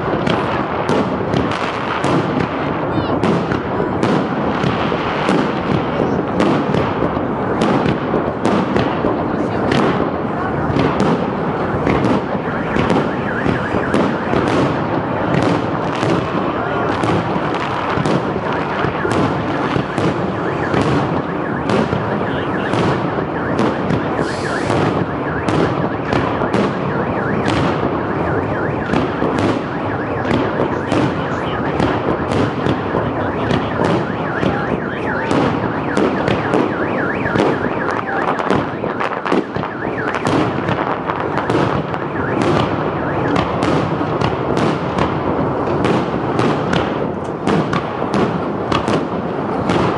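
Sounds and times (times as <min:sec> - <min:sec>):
fireworks bangs and crackle: 0:00.0 - 0:49.9.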